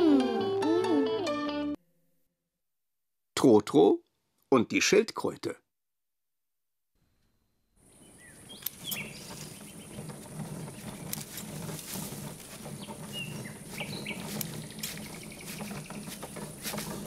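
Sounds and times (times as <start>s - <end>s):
birds chirping: 7.8s - 17.0s
sharp clicks: 8.6s - 9.1s.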